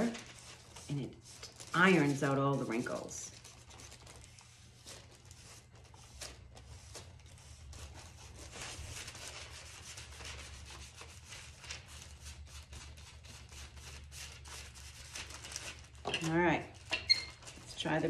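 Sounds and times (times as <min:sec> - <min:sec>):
hand rubbing paper: 0:00.0 - 0:15.9.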